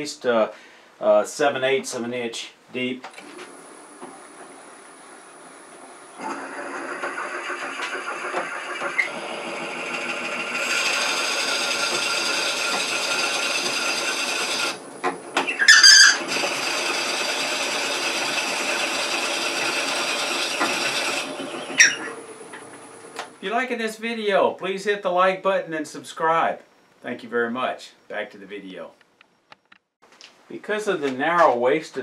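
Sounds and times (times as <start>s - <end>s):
lathe motor hum: 5.9s - 15.5s, 16.2s - 23.4s
drill bit cutting wood hiss: 6.2s - 14.8s, 15.4s - 22.4s
sharp squeak: 15.4s - 16.3s, 20.7s - 22.2s
short loud squeal: 15.4s - 16.4s, 21.7s - 22.2s.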